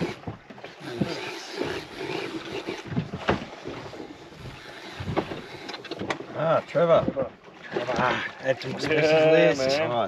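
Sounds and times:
sea noise: 0:00.0 - 0:10.0
wind: 0:00.0 - 0:10.0
knocks on boat: 0:02.9 - 0:03.9, 0:06.8 - 0:07.9.

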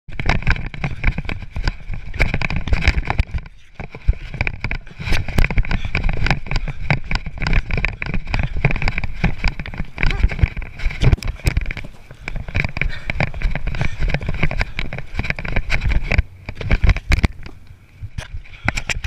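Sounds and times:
rapid running footfalls: 0:00.1 - 0:19.0
wind buffeting microphone: 0:00.1 - 0:19.0.

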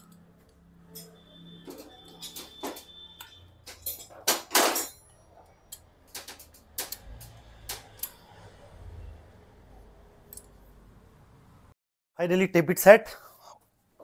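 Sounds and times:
metallic clicks of hand tools: 0:05.7 - 0:08.2.

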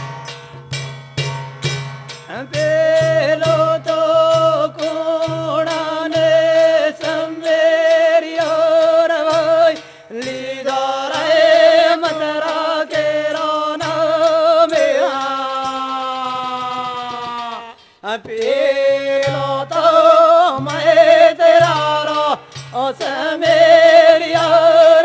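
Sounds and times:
brass cymbals: 0:00.0 - 0:08.5, 0:20.5 - 0:25.0
hand drum beats: 0:00.0 - 0:25.0
men chanting: 0:02.3 - 0:25.0.

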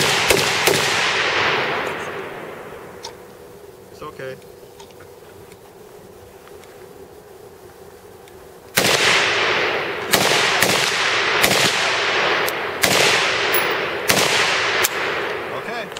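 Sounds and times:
machine gun single shots with echo: 0:00.0 - 0:02.5, 0:08.8 - 0:15.5.

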